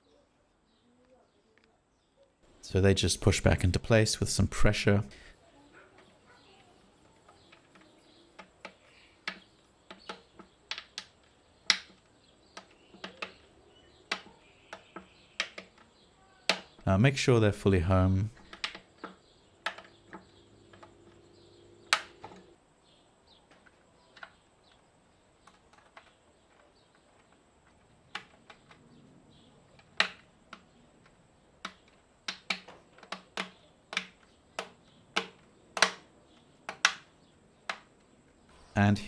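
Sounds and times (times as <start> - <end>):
plastic clicks and taps: 7.2 - 16.8, 18.4 - 21.2, 29.7 - 38.1.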